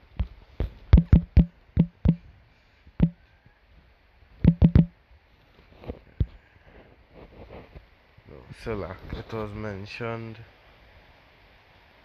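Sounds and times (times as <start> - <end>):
taps on smartphone screen: 0.9 - 2.2, 3.0 - 3.2, 4.4 - 4.9.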